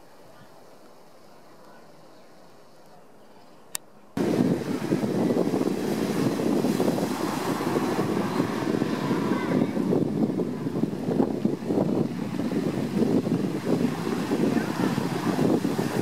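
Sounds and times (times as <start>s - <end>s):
waves washing over pebbles: 4.2s - 16.0s
wind buffeting microphone: 4.2s - 16.0s.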